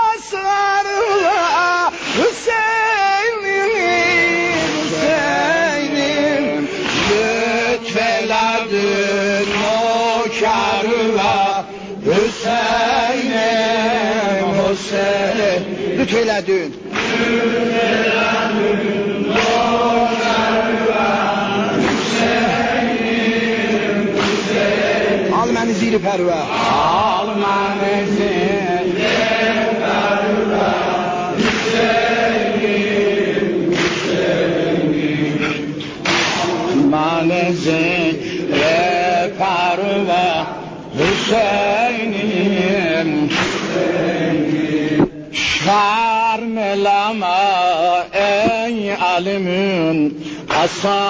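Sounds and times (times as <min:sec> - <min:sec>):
men chanting: 0:00.0 - 0:51.0.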